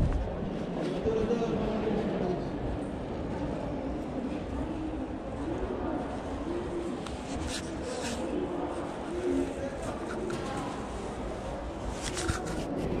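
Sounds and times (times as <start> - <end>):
murmur of voices: 0.0 - 13.0.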